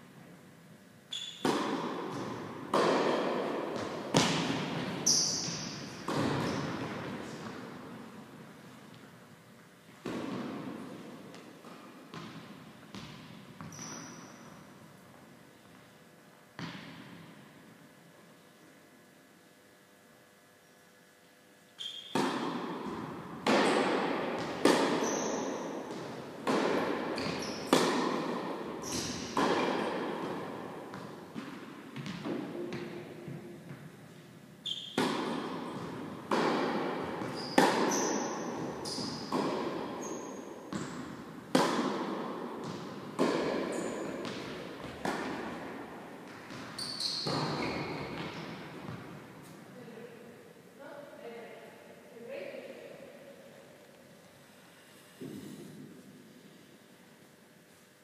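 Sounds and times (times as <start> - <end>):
tennis ball bouncing on court: 1.1 - 8.2, 10.0 - 14.7, 16.6 - 17.4, 21.8 - 33.9, 34.7 - 49.6
tennis ball hit by rackets: 1.3 - 8.1, 10.0 - 14.5, 21.8 - 33.9, 34.8 - 49.6.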